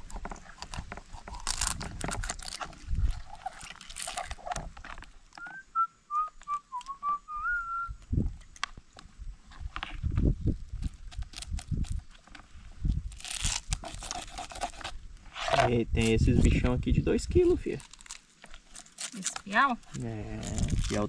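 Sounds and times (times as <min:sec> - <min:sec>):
person whistling a tune: 0:05.4 - 0:08.0
knife scraping fish scales: 0:13.1 - 0:15.7.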